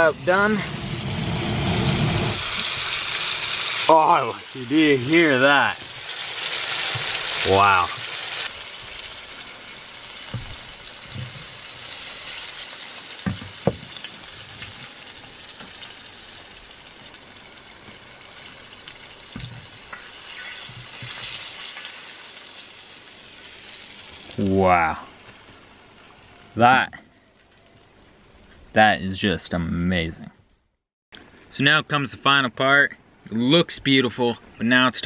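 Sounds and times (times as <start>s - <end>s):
fish deep-frying in oil: 0.0s - 26.6s.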